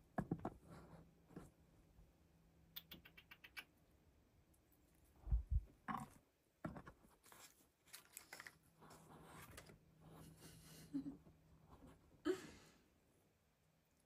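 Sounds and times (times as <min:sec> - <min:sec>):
dull low thumps: 0:05.2 - 0:05.7.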